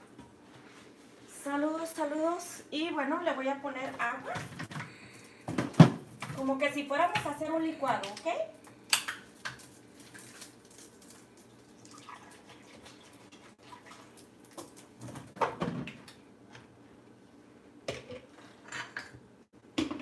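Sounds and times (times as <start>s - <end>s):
water pouring into blender jar: 11.5s - 14.2s.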